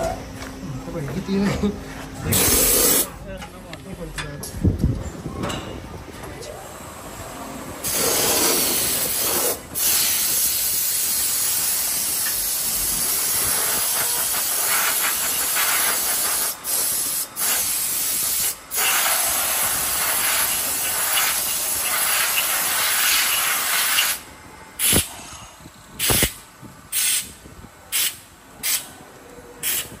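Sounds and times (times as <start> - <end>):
compressed air blow gun hissing: 2.3 - 3.1, 7.8 - 24.2, 24.8 - 25.2, 26.0 - 28.9.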